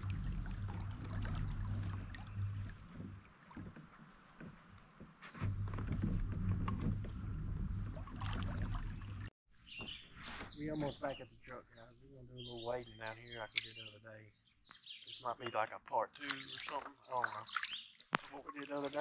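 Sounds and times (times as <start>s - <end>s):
kayak moving through water: 0.0s - 9.3s, 16.2s - 19.0s.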